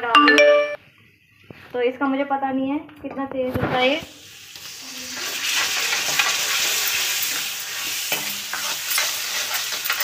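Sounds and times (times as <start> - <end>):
vegetables sizzling in oil: 3.6 - 10.0
steel ladle scraping pan: 5.2 - 10.0.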